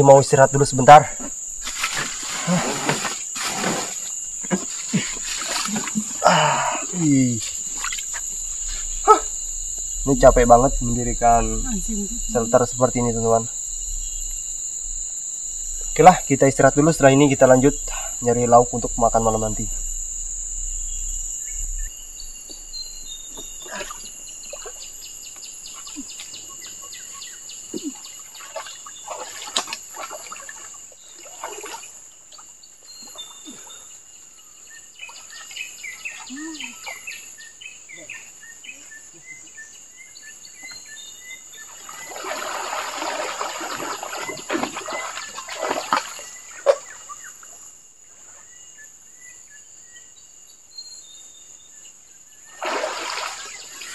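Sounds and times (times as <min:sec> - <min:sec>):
insects droning: 0:00.0 - 0:53.9
person swimming and splashing: 0:28.4 - 0:32.0, 0:41.8 - 0:46.3, 0:52.5 - 0:53.9.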